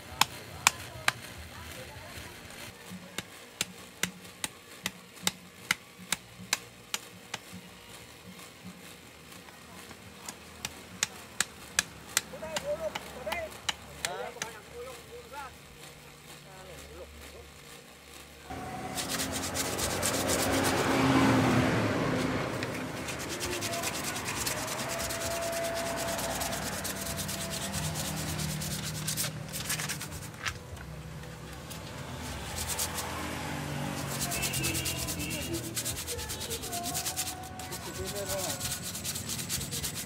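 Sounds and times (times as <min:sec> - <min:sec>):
steel blade scraping wood: 0:18.5 - 0:21.2, 0:22.0 - 0:30.6, 0:31.6 - 0:40.0.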